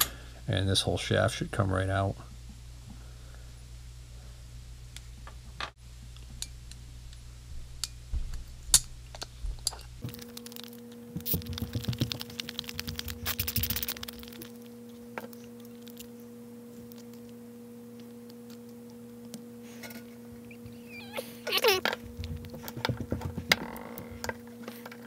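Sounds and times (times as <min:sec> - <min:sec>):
steady two-tone hum: 0:00.0 - 0:25.0
falling squeak: 0:20.5 - 0:21.8.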